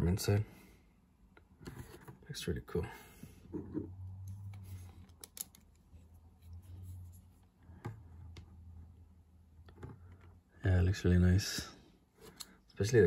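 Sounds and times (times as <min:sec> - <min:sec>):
low hum: 0:03.5 - 0:10.2.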